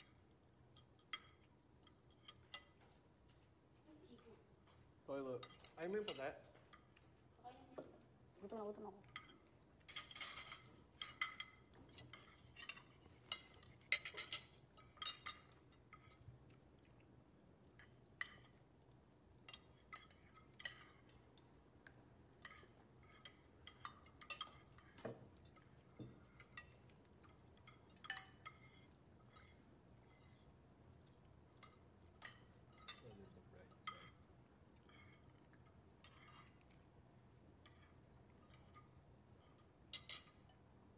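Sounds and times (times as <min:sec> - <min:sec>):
cutlery clinking on plates: 0:09.0 - 0:16.9, 0:17.7 - 0:36.8, 0:37.6 - 0:40.7.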